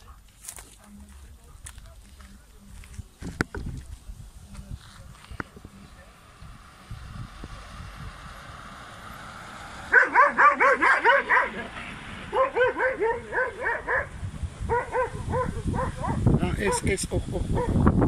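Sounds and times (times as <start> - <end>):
dog yelping: 9.9 - 16.9.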